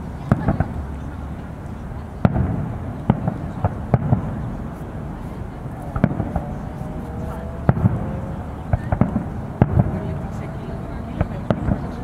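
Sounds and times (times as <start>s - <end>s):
steady low rumble: 0.0s - 12.0s
fireworks bangs: 2.2s - 12.0s.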